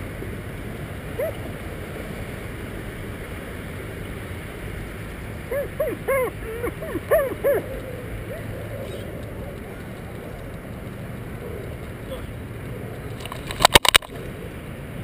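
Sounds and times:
rushing wind and rub noise: 0.0 - 15.0
dog yelping: 1.2 - 1.5, 5.5 - 9.0.

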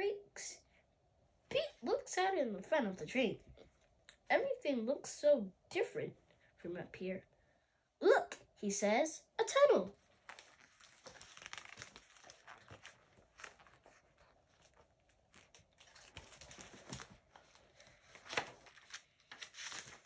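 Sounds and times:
book page flip: 10.0 - 20.0
paper rustling: 10.0 - 20.0.

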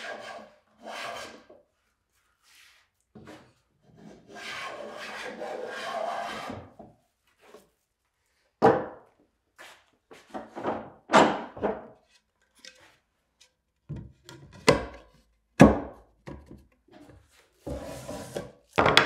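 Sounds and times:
wood-on-wood knocks and clunks: 8.6 - 9.1, 10.3 - 12.0, 13.9 - 17.8, 18.8 - 19.0.

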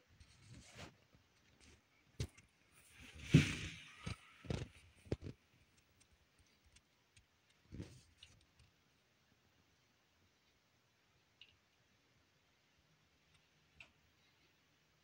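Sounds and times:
thump with rustle: 3.1 - 4.7.

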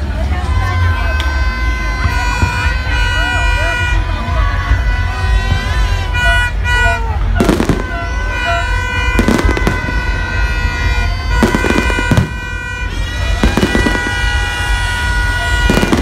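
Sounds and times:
fireworks bursting with crackle: 4.9 - 16.0.

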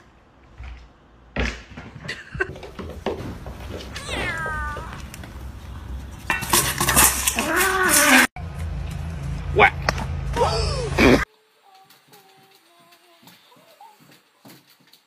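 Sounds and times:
cat meowing: 3.9 - 5.0
cat yowling: 3.9 - 5.0
steel bowl clattering on tiles: 6.3 - 7.6.

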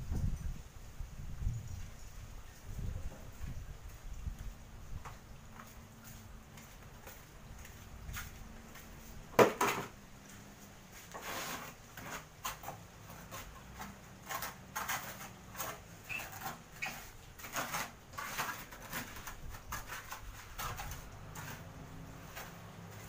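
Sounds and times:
steel trowel scraping wet cement: 11.1 - 23.0.

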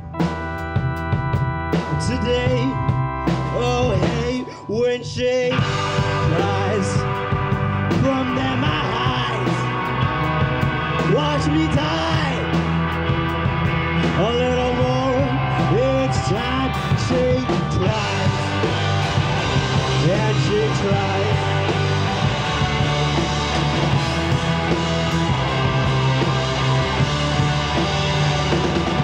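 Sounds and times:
rock band playing live: 0.0 - 29.0
lead vocal singing: 1.9 - 12.7, 14.0 - 23.3.

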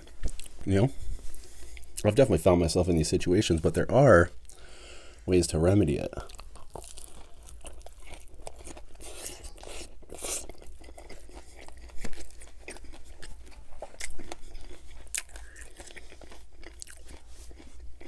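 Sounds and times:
chewing with mouth clicks: 6.2 - 18.0.

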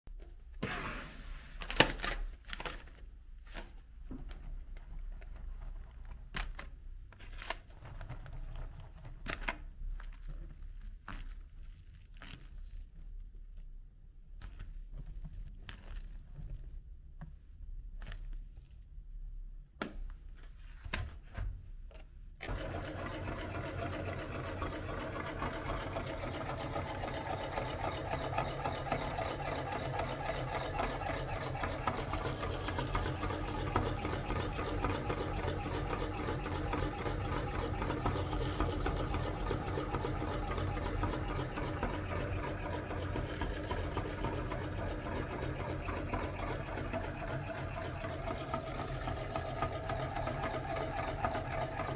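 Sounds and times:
meat grinder running: 22.5 - 51.9.

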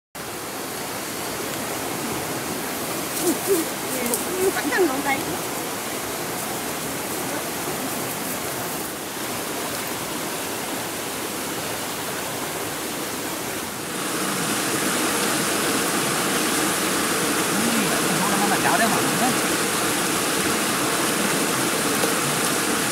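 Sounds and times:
small waterfall spilling: 0.2 - 22.9
stream water rushing: 0.2 - 22.9.

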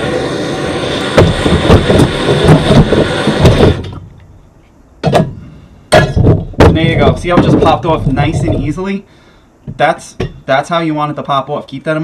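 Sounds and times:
gas torch hissing: 0.0 - 4.6
sharp knock: 1.2 - 4.0, 5.0 - 8.6.

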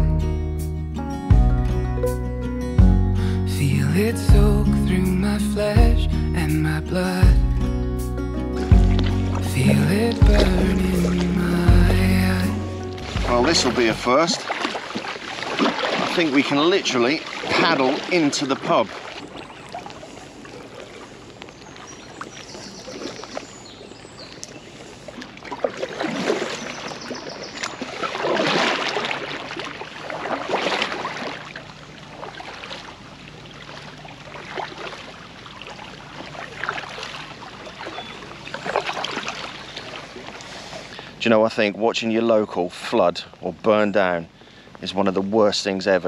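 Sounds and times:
paddle splashing water: 8.5 - 41.2.

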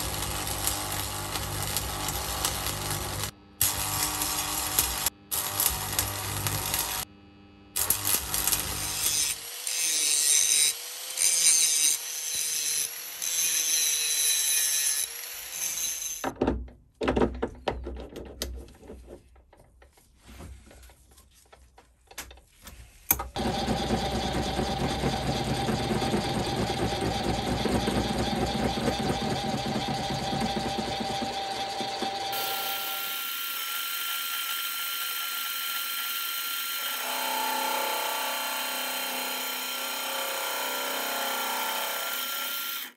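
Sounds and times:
welding arc crackling: 0.0 - 7.1, 7.8 - 9.4
metal lathe motor whine: 23.4 - 42.9.

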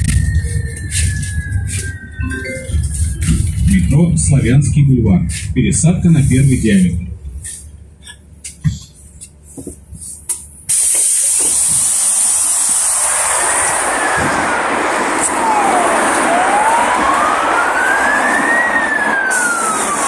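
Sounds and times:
emergency siren wailing: 0.0 - 6.3, 12.0 - 20.0
street traffic noise: 0.0 - 20.0.

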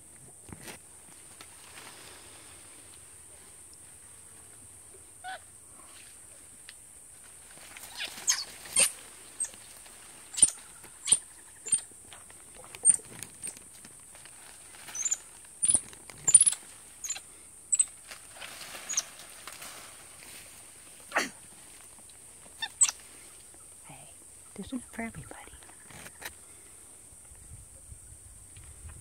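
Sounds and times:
monkeys squeaking: 7.9 - 9.5, 10.3 - 11.8, 12.8 - 13.0, 14.9 - 17.9, 18.9 - 19.1, 22.6 - 23.0.

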